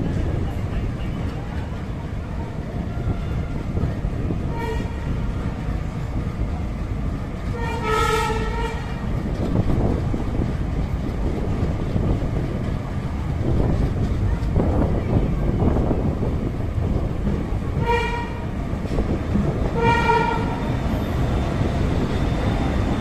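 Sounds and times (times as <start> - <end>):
train running rumble: 0.0 - 23.0
train horn: 4.4 - 5.5, 7.5 - 9.1, 17.8 - 18.5, 19.7 - 20.7.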